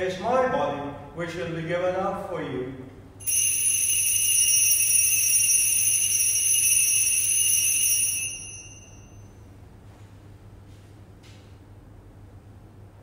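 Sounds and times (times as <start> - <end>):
altar bells ringing: 3.2 - 9.5.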